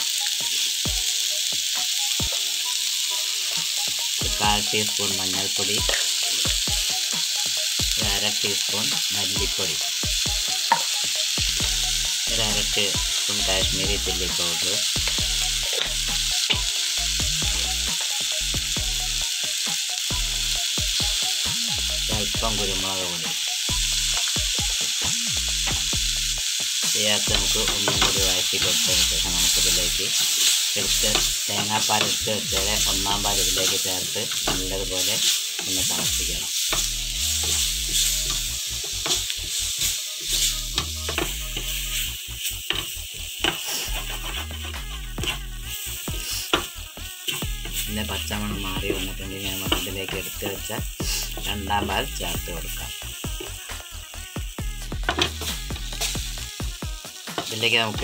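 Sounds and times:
background music: 0.0s - 58.0s
vegetables sizzling in oil: 0.0s - 58.0s
spatula scraping pan: 27.2s - 50.4s, 55.0s - 56.4s.

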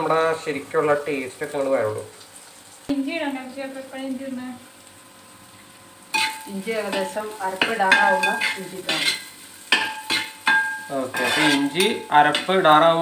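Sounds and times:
food sizzling in a pan: 0.0s - 13.0s
spatula clanking against pan: 6.1s - 12.6s
metal spatula scraping a pan: 6.1s - 12.7s.

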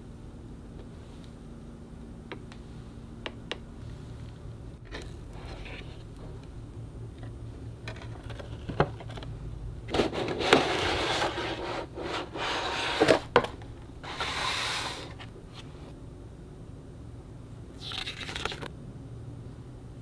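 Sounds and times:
cardboard boxes rubbing and scraping: 9.9s - 13.3s, 14.0s - 15.3s.

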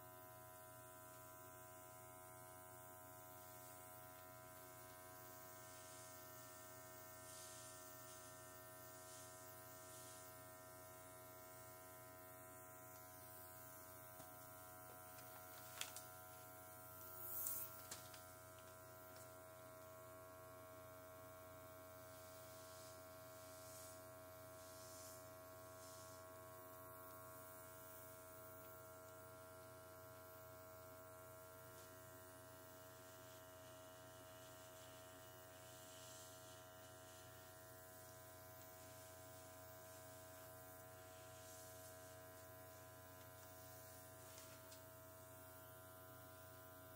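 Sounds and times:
airbrush compressor hum: 4.6s - 19.8s, 21.6s - 28.6s
airbrush air hiss: 7.2s - 8.3s, 8.9s - 10.5s, 15.0s - 18.2s, 22.1s - 26.8s, 38.0s - 44.9s.

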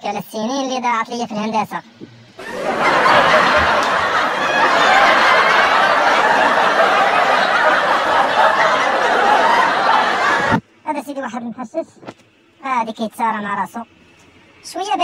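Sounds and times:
canned audience laughter: 2.4s - 10.6s.

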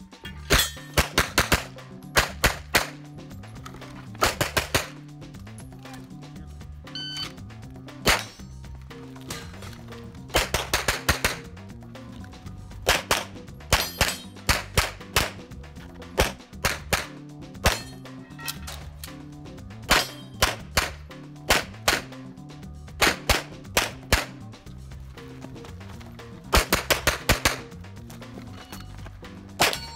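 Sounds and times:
background music: 0.0s - 29.9s
pistol shots: 0.8s - 3.0s, 4.2s - 5.0s, 8.0s - 8.4s, 10.3s - 11.5s, 12.8s - 15.5s, 16.2s - 18.0s, 19.9s - 22.2s, 23.0s - 24.4s, 26.5s - 27.8s, 29.6s - 29.9s.

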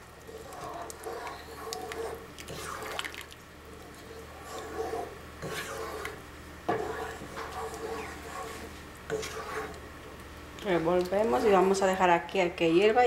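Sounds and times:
soup sloshing: 0.0s - 9.9s.

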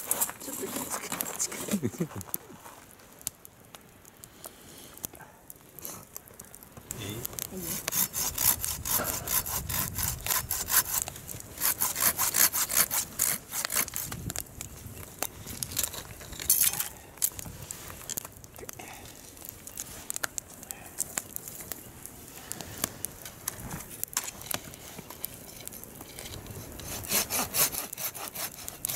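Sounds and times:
hand saw cutting wood: 7.6s - 14.1s, 26.6s - 28.9s
saw blade scraping wood: 7.6s - 14.2s, 25.6s - 28.9s.

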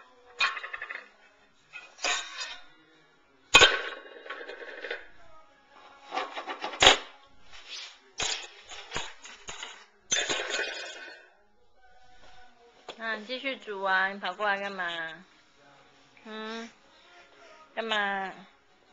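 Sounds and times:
metal pots and lids clanging: 0.4s - 1.1s, 1.7s - 2.6s, 9.5s - 11.2s.

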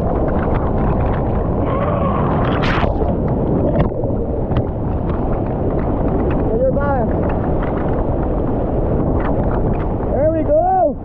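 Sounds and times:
water splash: 0.0s - 6.4s
wind buffeting microphone: 0.0s - 11.0s.

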